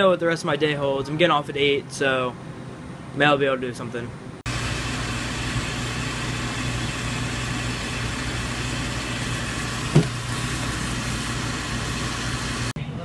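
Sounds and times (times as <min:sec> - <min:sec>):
water rushing from hose into bucket: 0:04.5 - 0:12.7.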